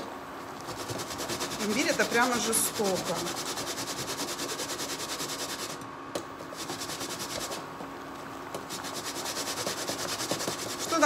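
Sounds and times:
ginger grated on metal grater: 0.6s - 5.8s, 6.5s - 7.6s, 8.7s - 11.0s.

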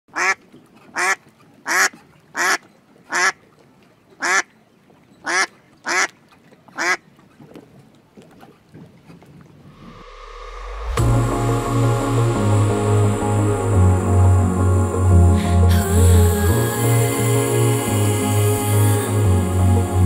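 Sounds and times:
duck quacking: 0.1s - 0.4s, 1.0s - 3.4s, 4.2s - 4.5s, 5.2s - 6.1s, 6.8s - 7.0s.

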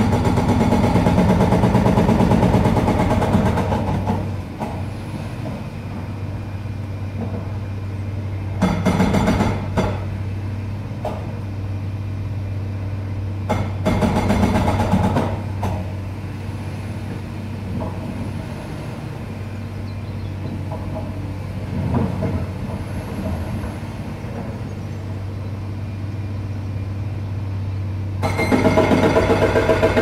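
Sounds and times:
pneumatic breaker hammering concrete: 0.0s - 4.9s, 8.6s - 10.2s, 13.4s - 16.0s, 28.2s - 30.0s
low engine hum: 0.0s - 30.0s.

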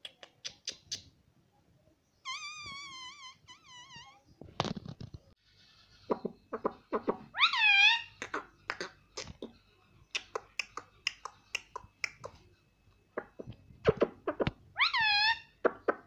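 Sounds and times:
parakeet squawk: 6.1s - 8.5s, 13.9s - 15.6s.

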